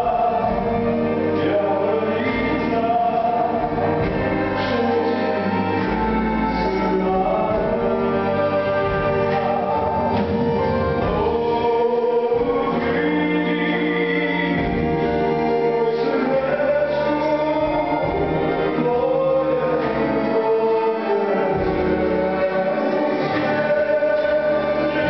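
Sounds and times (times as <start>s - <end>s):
man singing into microphone: 0.0s - 10.2s, 11.0s - 25.0s
musical accompaniment: 0.0s - 25.0s.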